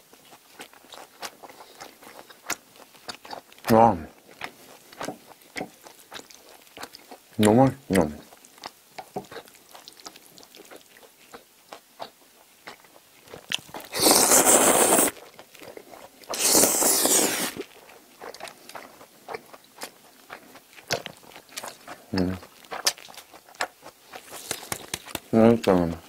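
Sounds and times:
soft chewing: 0.0s - 26.0s
loud slurping of spaghetti: 13.7s - 15.2s, 16.3s - 17.7s.

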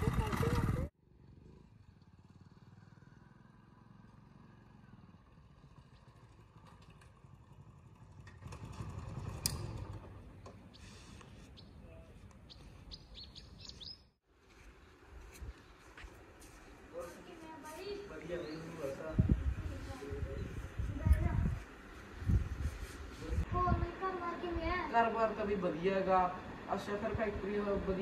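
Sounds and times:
small motorcycle engine running: 0.0s - 10.4s
birds chirping: 10.4s - 15.1s, 17.2s - 21.1s.

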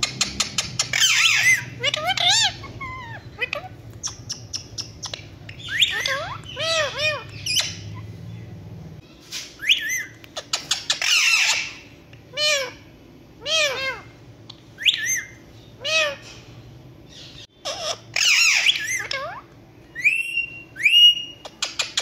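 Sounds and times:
parakeets squawking: 0.0s - 8.6s, 9.6s - 22.0s.

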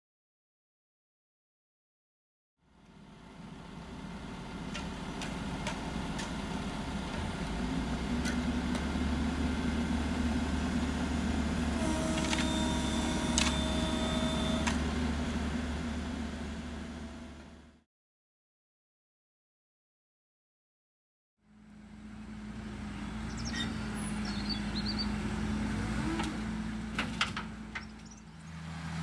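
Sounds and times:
diesel engines idling: 2.6s - 17.8s, 21.5s - 29.0s
steady whine: 3.6s - 17.8s.

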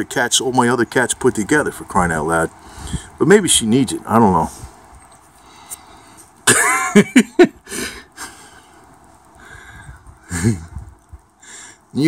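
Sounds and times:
man coughing: 6.4s - 7.2s
man clearing his throat: 6.5s - 6.9s.

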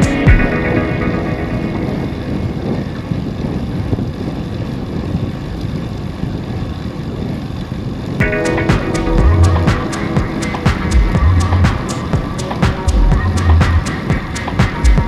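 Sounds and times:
music: 0.0s - 2.8s, 8.2s - 15.0s
wind rumbling on microphone: 0.0s - 15.0s.

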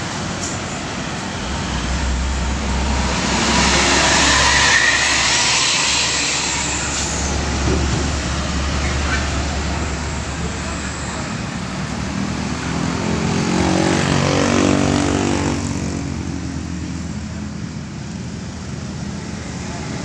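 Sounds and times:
diesel lorry passing: 0.0s - 20.0s
low rumble: 0.8s - 10.8s.

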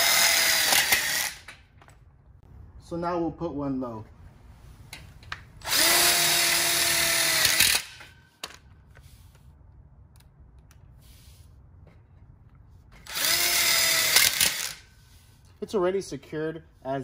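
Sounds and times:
impact driver driving screw: 0.0s - 1.6s, 5.6s - 8.1s, 13.0s - 14.8s.

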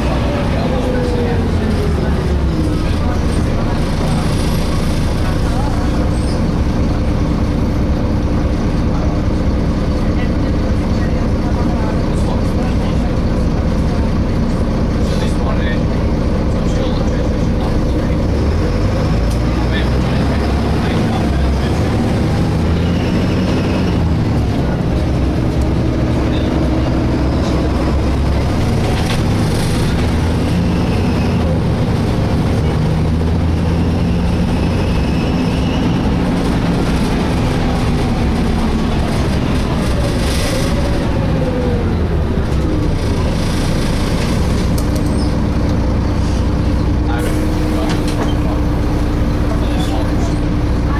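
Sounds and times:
bus engine and road rumble: 0.0s - 50.9s.

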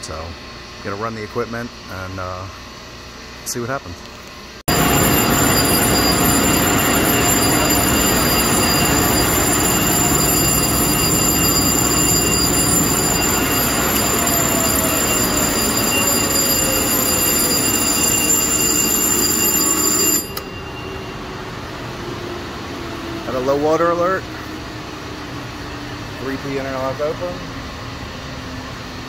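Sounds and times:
fan noise: 0.0s - 18.7s
thin high whines: 4.7s - 24.2s.

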